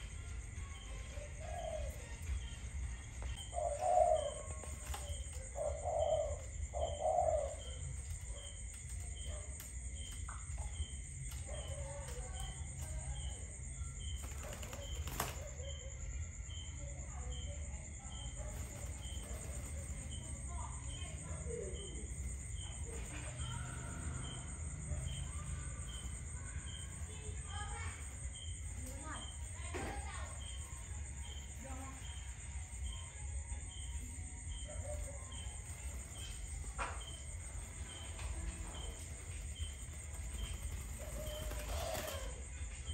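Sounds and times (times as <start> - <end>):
dove wings flapping: 3.9 - 5.6, 14.0 - 15.6, 18.2 - 20.9, 35.5 - 42.5.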